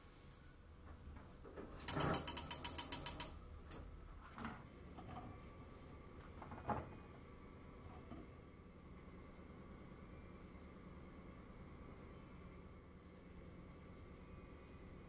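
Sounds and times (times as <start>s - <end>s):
gas stove igniter clicking: 1.8s - 3.4s.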